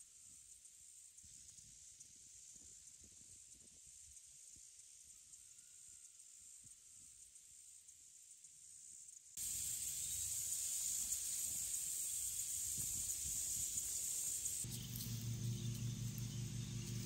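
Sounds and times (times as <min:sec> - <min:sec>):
insects buzzing: 0:00.0 - 0:17.0
low steady hum: 0:14.4 - 0:17.0.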